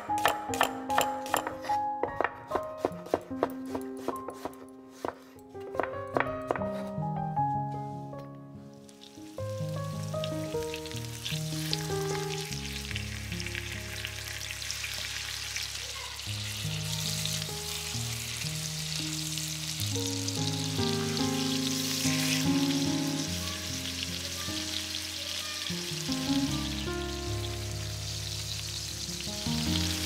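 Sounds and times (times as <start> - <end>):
slow background music: 0.0 - 30.0
chicken sizzling in a pan: 8.8 - 30.0.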